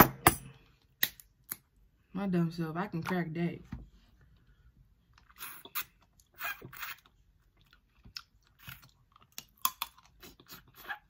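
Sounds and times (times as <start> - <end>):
crab shell cracking and snapping: 8.1 - 10.2.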